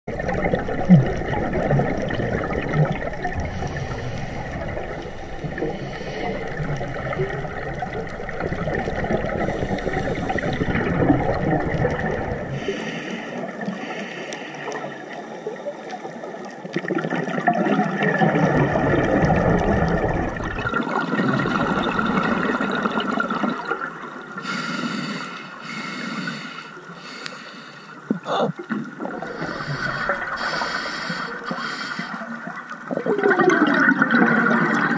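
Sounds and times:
gurgling exhaled bubbles: 0:00.1 - 0:14.0, 0:14.6 - 0:26.0, 0:28.1 - 0:34.9
diver breathing through regulator: 0:03.4 - 0:04.8, 0:05.6 - 0:06.6, 0:12.6 - 0:14.9, 0:24.4 - 0:28.1, 0:29.2 - 0:32.3.

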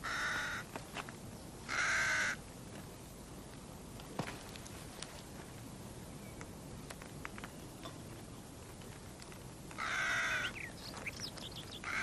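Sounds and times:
crow cawing: 0:00.0 - 0:00.7, 0:01.7 - 0:02.4, 0:09.8 - 0:10.6
small birds chirping faintly: 0:04.4 - 0:12.0.

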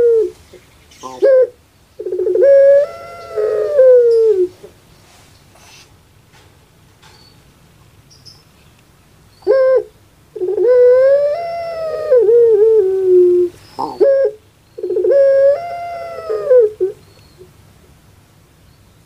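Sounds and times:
dove cooing: 0:00.0 - 0:04.8, 0:09.4 - 0:17.4.

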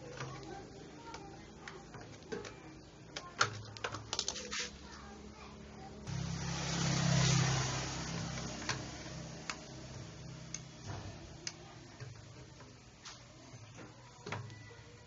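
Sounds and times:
generator engine humming: 0:04.8 - 0:14.2.

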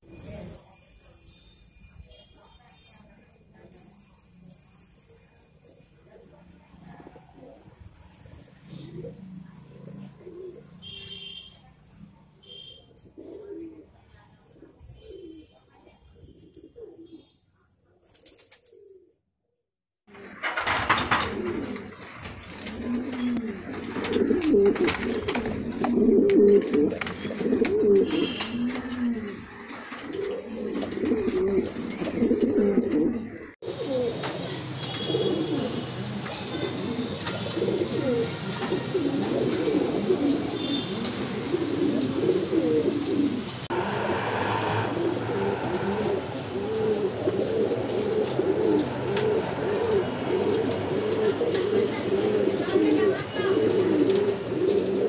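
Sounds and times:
pigeons cooing: 0:06.9 - 0:11.0, 0:13.0 - 0:15.2, 0:16.4 - 0:17.3, 0:20.6 - 0:55.0.

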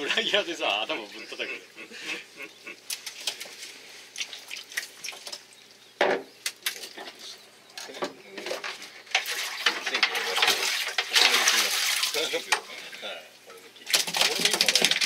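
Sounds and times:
water splashing: 0:02.8 - 0:05.6, 0:09.0 - 0:13.0, 0:13.8 - 0:15.0.

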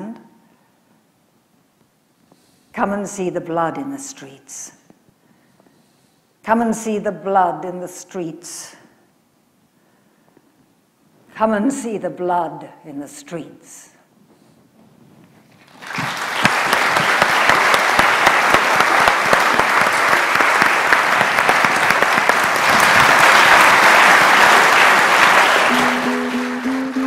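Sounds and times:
audience applause: 0:15.7 - 0:27.0
plucked string instrument: 0:25.7 - 0:27.0.

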